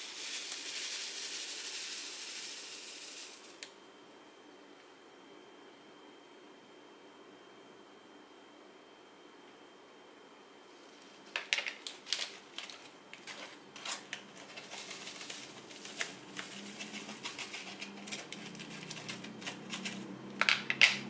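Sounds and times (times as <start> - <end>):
small plastic beads rattling in tray: 0.0 - 3.5, 14.4 - 20.0.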